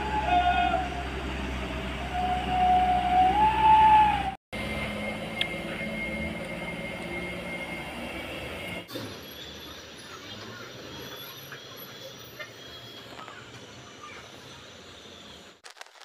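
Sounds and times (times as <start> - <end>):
heavy truck engines rumbling: 0.0 - 15.6.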